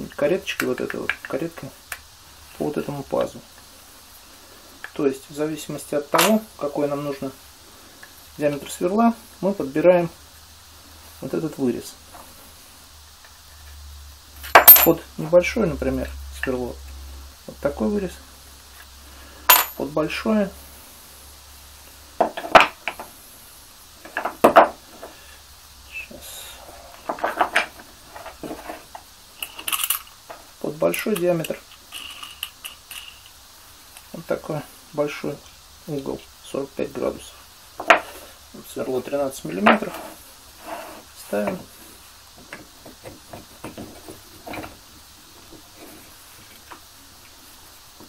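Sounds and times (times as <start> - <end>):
wooden blocks knocking: 24.1 - 25.1, 37.8 - 38.1
clicks and knocks of handled parts: 27.1 - 34.1.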